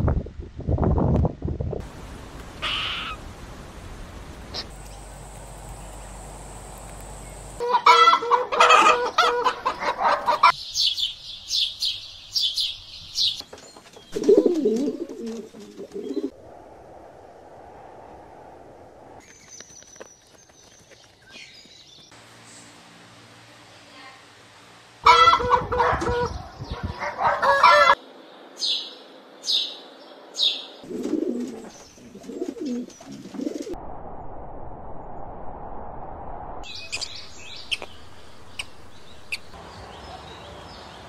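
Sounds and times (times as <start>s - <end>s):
low bird call: 2.6s - 3.2s
chicken clucking: 7.6s - 10.5s, 25.1s - 28.0s
sparrow chirps: 10.5s - 13.4s, 36.7s - 41.0s.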